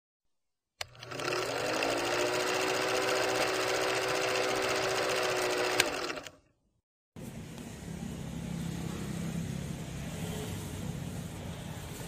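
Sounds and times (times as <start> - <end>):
film projector motor whirring: 0.8 - 6.4.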